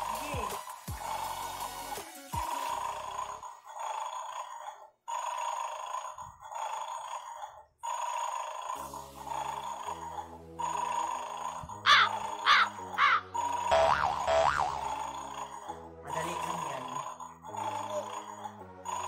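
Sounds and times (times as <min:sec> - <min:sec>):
springy boing glides: 0:11.9 - 0:15.0.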